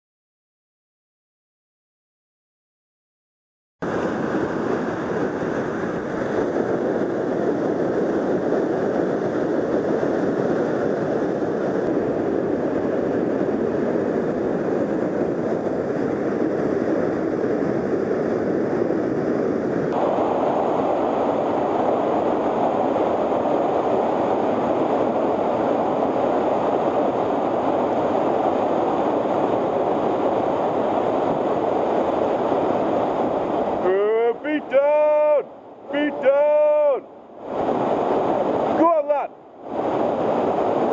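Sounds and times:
whitewater roaring: 3.8s - 40.9s.

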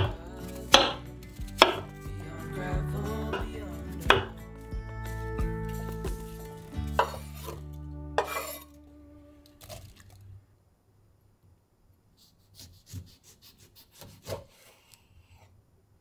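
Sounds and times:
soft background music: 0.0s - 10.2s
knife scraping cutting board: 7.0s - 7.6s, 8.2s - 8.8s
knife cutting apple on board: 12.5s - 15.0s.

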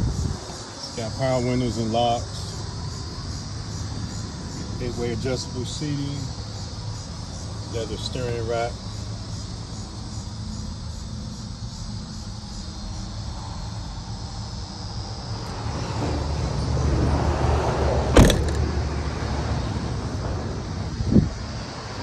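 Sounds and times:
traffic noise: 0.0s - 22.0s
car door shutting: 18.2s - 18.7s
car engine idling: 18.2s - 18.8s.

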